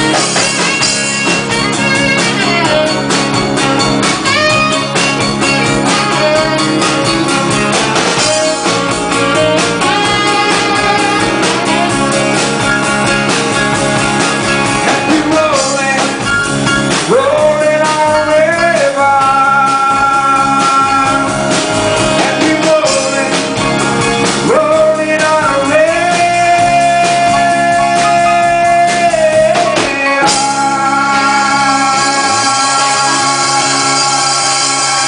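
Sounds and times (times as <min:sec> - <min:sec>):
acoustic guitars strumming: 0:00.0 - 0:35.0
lead singer singing: 0:14.8 - 0:35.0
synthesizer keyboard: 0:26.7 - 0:35.0.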